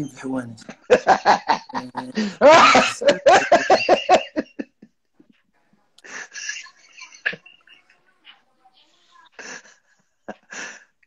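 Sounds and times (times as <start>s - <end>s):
man laughing: 0.7s - 4.8s.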